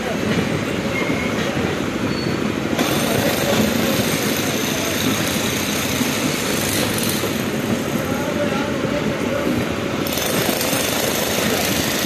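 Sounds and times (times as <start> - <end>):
train wheels clattering on rails: 0.0 - 12.0
train hiss: 2.8 - 8.4.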